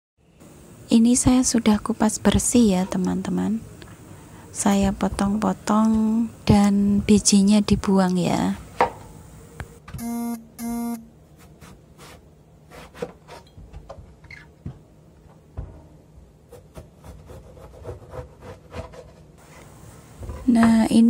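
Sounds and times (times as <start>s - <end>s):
short electronic beeps: 10.0s - 11.1s.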